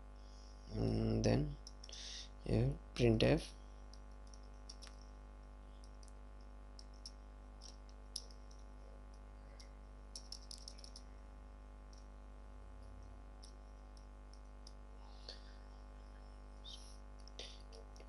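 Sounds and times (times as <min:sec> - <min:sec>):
faint electrical hum: 0:00.0 - 0:18.0
computer keyboard keystrokes: 0:03.9 - 0:05.0, 0:06.8 - 0:08.6, 0:10.1 - 0:11.0.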